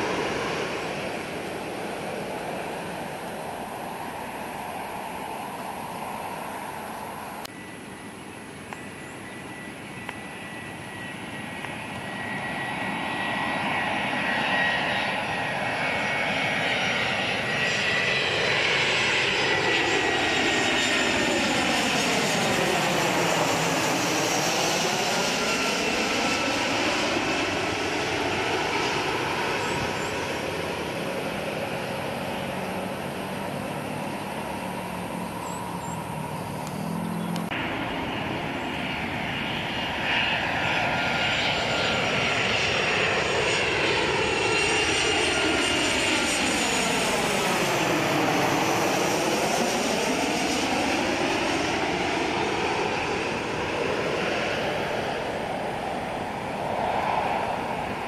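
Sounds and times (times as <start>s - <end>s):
jet engine whoosh: 0.0s - 7.7s, 10.3s - 58.0s
jet airliner passing overhead: 0.0s - 58.0s.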